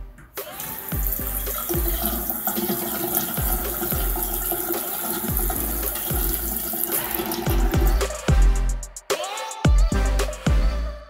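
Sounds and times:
music with steady beat: 0:00.0 - 0:11.0
water running from faucet into sink: 0:00.6 - 0:08.1.

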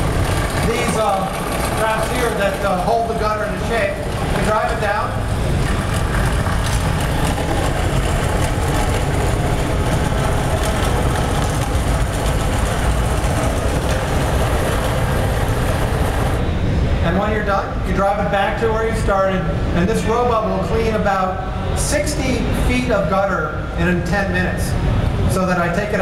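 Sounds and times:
gutter cleaning robot machine noise: 0:00.0 - 0:16.6.

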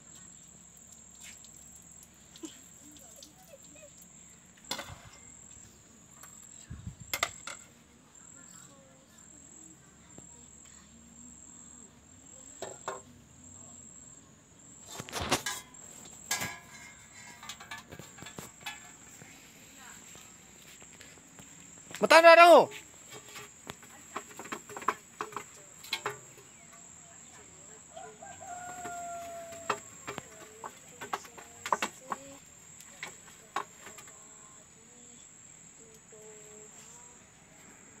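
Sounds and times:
crickets droning: 0:00.0 - 0:38.0
insect trilling: 0:00.2 - 0:06.5, 0:20.6 - 0:37.2
metal dishes clattering: 0:04.7 - 0:05.3, 0:15.2 - 0:19.2, 0:24.2 - 0:26.5
pots being scrubbed: 0:14.8 - 0:20.8, 0:22.7 - 0:26.7.

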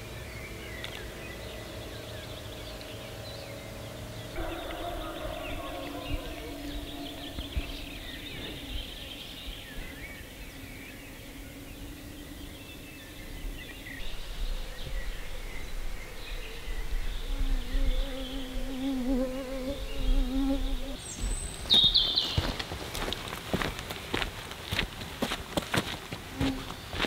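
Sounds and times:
small birds chirping: 0:00.0 - 0:24.9, 0:25.7 - 0:27.0
insect buzzing: 0:14.0 - 0:21.3.

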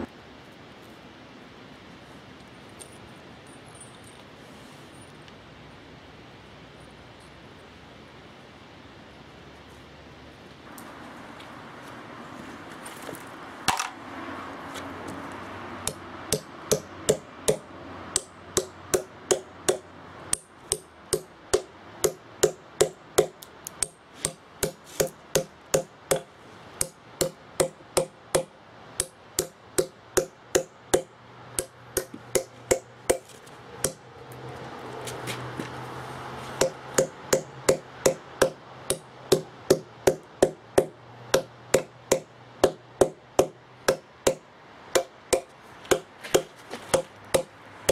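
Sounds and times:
hammer striking steel wedges: 0:15.8 - 0:34.0, 0:36.6 - 0:47.9.

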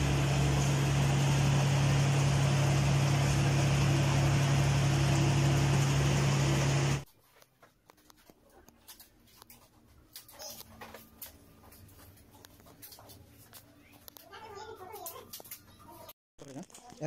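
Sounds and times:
mixer motor whirring: 0:00.0 - 0:07.1
faint clicks and handling noise: 0:07.1 - 0:17.0.

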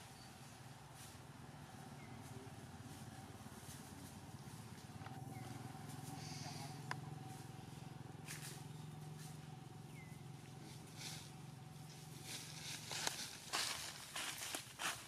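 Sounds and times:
steady low hum: 0:00.0 - 0:15.0
dry leaves rustling and crackling: 0:00.9 - 0:06.3, 0:10.5 - 0:15.0.

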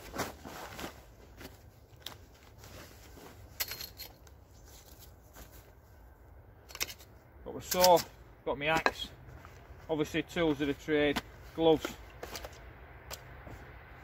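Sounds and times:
canvas bundle rustling: 0:00.0 - 0:06.2, 0:09.0 - 0:12.6.

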